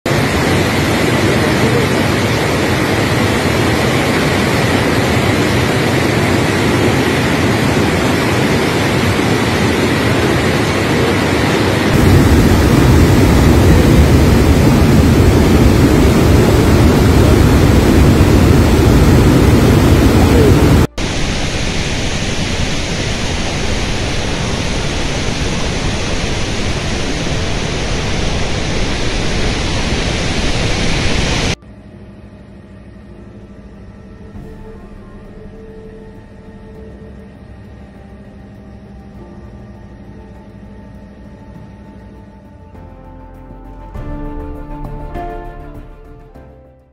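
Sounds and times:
floodwater rushing: 0.1 - 31.6
waterfall roaring: 0.1 - 31.6.

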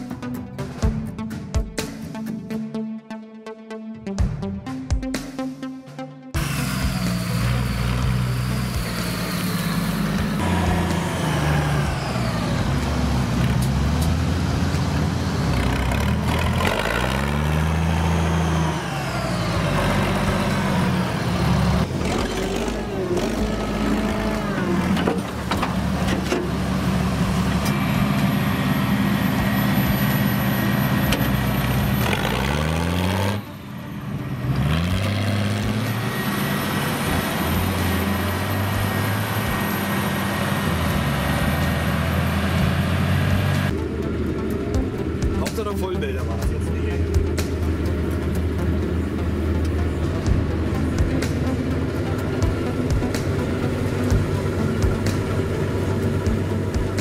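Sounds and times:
tractor diesel engine running: 6.4 - 57.0.

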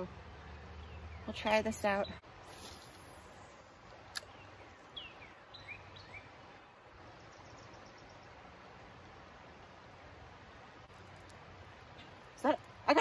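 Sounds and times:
outdoor background hiss: 0.0 - 13.0
bird chirps: 4.2 - 8.4.

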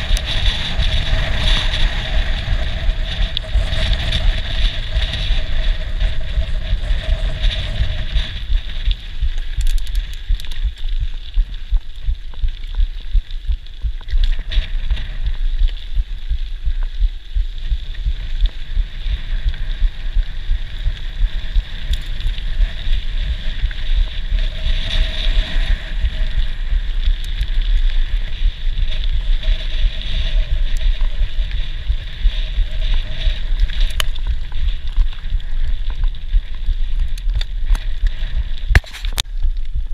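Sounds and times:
bike rattling clicks: 0.0 - 16.1, 20.3 - 26.3
wind rumble on microphone: 0.0 - 39.9.

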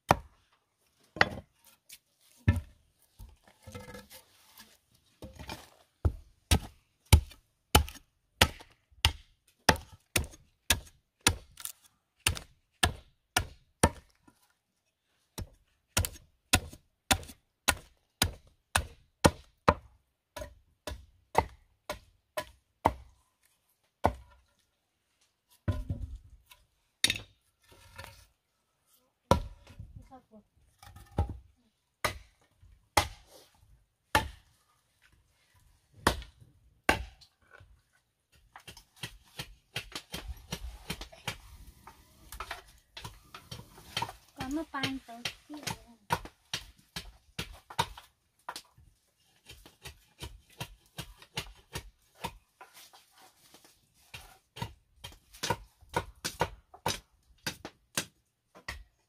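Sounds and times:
machete chopping wood: 6.0 - 14.0, 16.0 - 23.1, 24.0 - 24.3, 29.3 - 29.5, 32.0 - 32.4, 33.0 - 33.3, 34.1 - 34.4, 36.0 - 37.2, 38.6 - 41.4, 43.9 - 48.7, 54.6 - 58.8.

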